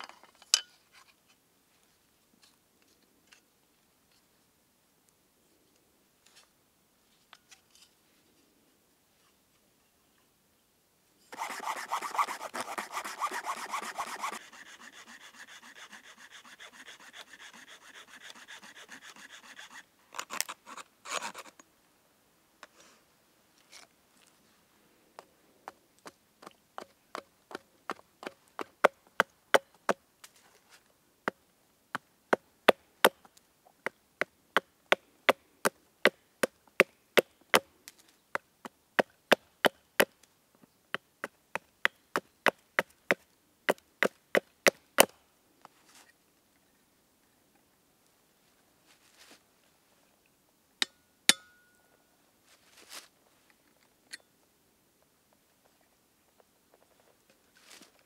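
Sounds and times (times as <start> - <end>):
rough rasping strokes: 11.3 - 21.5.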